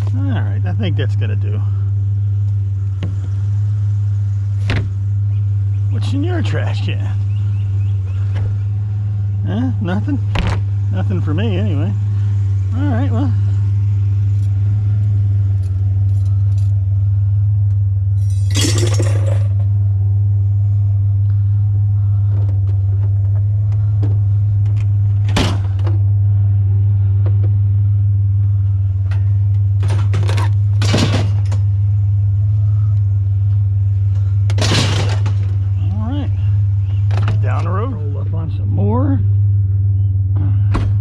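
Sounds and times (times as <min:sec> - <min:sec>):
truck engine droning: 0:00.0 - 0:41.0.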